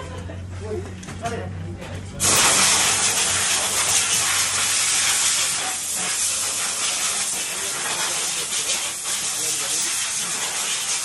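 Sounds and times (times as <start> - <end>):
loud steady hiss: 2.2 - 11.0.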